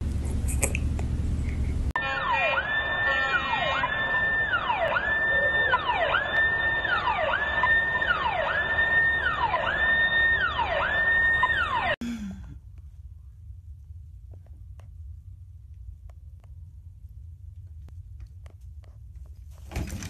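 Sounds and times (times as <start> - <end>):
electronic siren wailing: 2.0 - 12.0.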